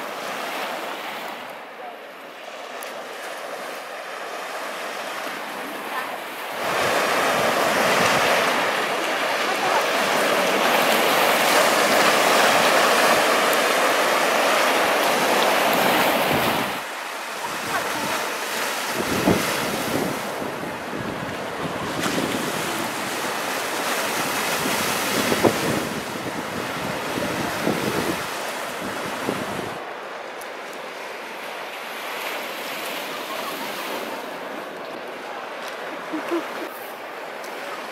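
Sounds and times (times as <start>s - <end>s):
surf rushing: 0.0s - 37.9s
waves splashing among rocks: 2.7s - 29.8s.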